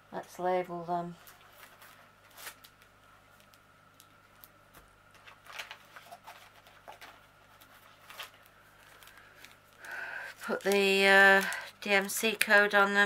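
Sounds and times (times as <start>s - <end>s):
hands rustling craft supplies: 4.4s - 12.6s.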